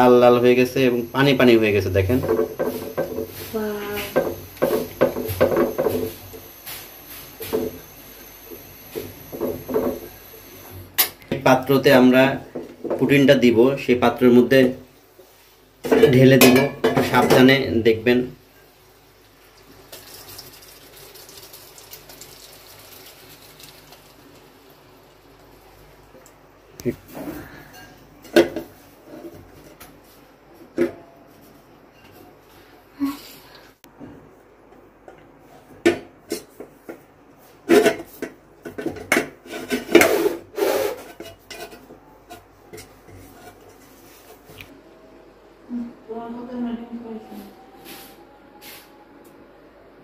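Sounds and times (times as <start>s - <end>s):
hot caramel sizzling and bubbling: 0.0s - 11.0s, 18.1s - 26.8s
pan knocking: 2.1s - 3.4s, 4.0s - 6.1s.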